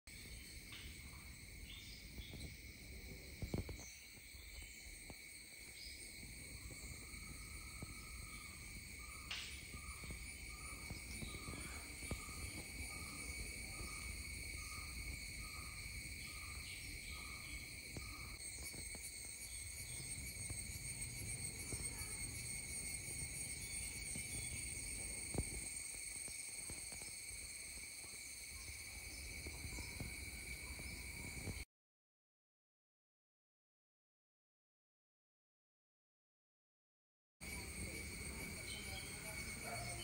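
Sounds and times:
cicadas buzzing: 0.1 - 31.6, 37.4 - 40.0.

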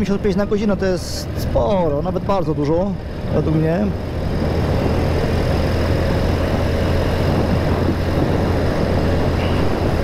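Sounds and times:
motorcycle engine droning: 2.7 - 10.0.

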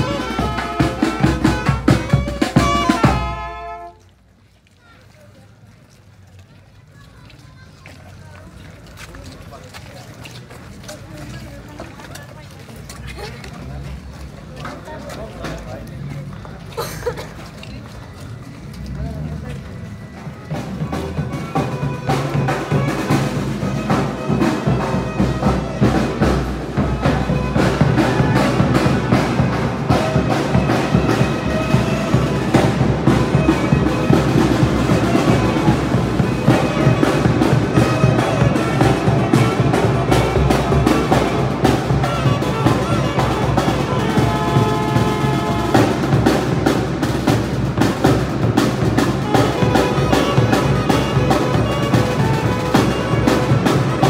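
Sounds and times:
bass drum beat: 0.0 - 3.6
saxophone and brass melody: 0.0 - 4.0, 27.0 - 46.5, 49.3 - 54.0.

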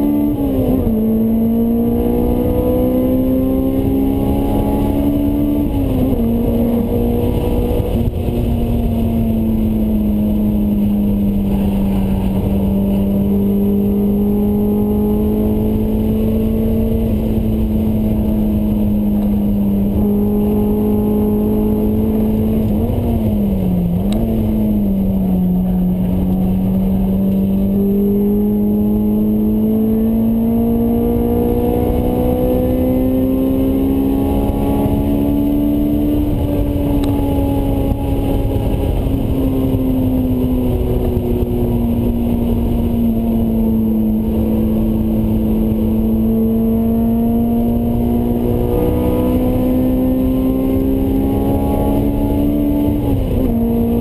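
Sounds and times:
car engine revving: 0.0 - 54.0.

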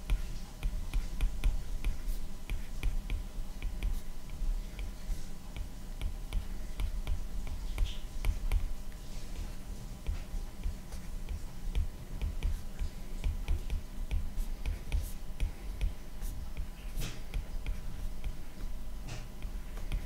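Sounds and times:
soft low thumps: 9.4 - 20.0.

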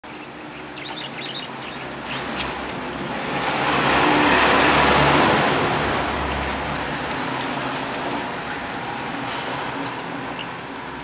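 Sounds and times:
budgerigar chirps: 0.1 - 2.6
passing car: 2.8 - 10.4.

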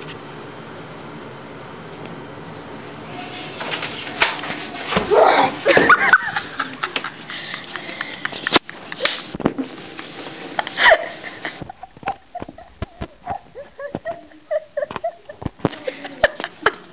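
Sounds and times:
people laughing wheezily: 5.2 - 9.3, 10.5 - 16.9.

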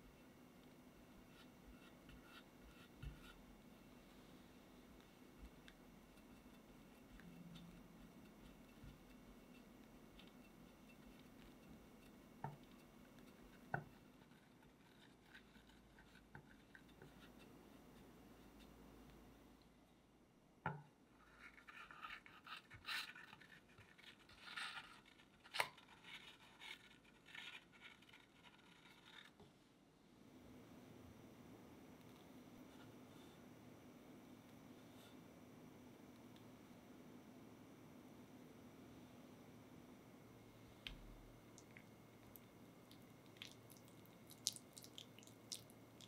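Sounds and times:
spatula scraping cream on cake: 1.0 - 18.8, 21.3 - 29.4.

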